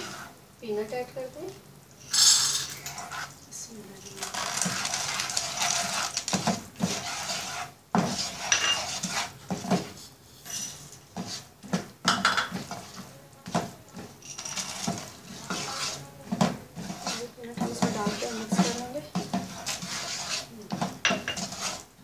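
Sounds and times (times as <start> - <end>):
spatula scraping and knocking pan: 0.0 - 0.4, 2.1 - 3.4, 4.0 - 22.0
peanuts pouring into a pan: 2.0 - 3.3, 4.0 - 7.5, 14.2 - 15.8.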